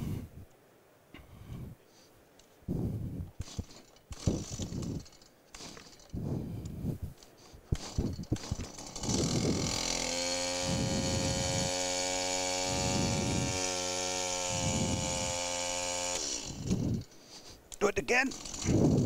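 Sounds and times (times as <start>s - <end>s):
chainsaw engine idling: 3.4s - 6.2s, 7.8s - 17.4s, 18.1s - 19.0s
chainsaw starter clicks and rattles: 3.4s - 6.2s, 7.2s - 19.0s.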